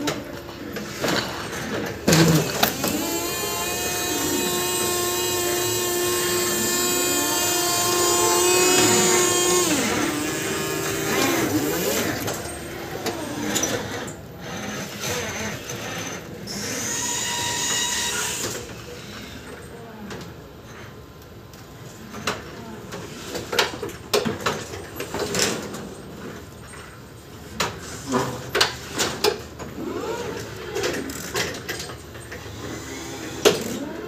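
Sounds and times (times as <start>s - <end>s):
electric truck motor whining: 2.0s - 14.1s.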